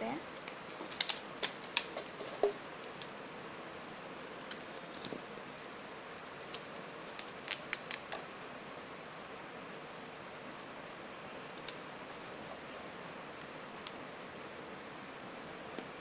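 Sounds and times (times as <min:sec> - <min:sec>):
low hiss: 0:00.0 - 0:16.0
plastic sheet crackling and clicking: 0:00.3 - 0:03.2.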